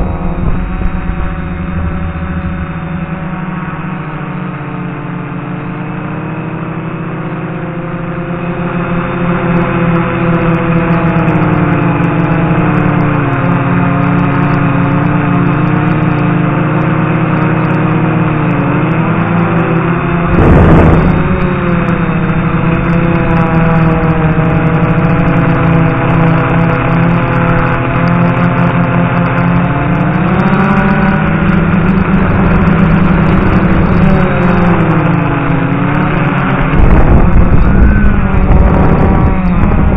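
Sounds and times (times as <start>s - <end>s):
loud rush of noise: 0.0s - 6.3s, 19.7s - 26.2s, 29.8s - 39.9s
drone motors and propellers: 0.0s - 39.9s.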